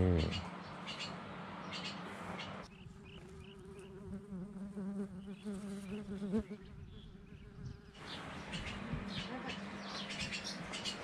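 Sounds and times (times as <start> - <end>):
honeybee buzzing in flight: 2.7 - 8.0.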